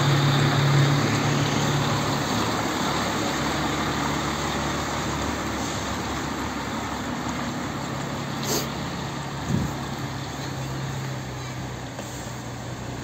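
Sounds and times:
diesel truck engine running: 0:00.0 - 0:13.0
air hiss: 0:08.4 - 0:08.8.

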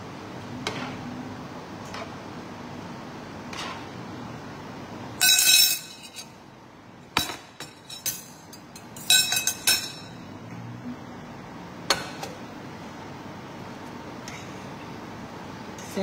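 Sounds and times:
dishes and utensils clinking: 0:05.2 - 0:06.4, 0:07.2 - 0:10.2.

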